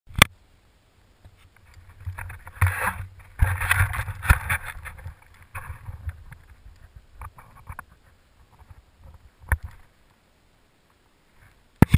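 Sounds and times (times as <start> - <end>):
bike tyres crunching on snow: 1.2 - 10.1.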